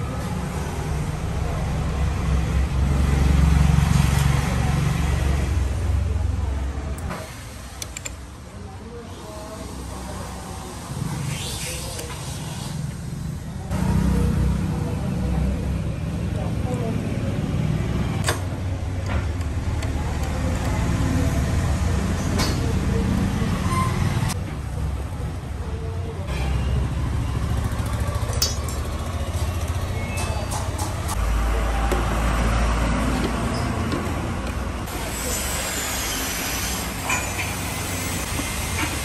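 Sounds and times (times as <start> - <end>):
road traffic: 0.0 - 39.0
light metallic clinks: 28.2 - 29.0.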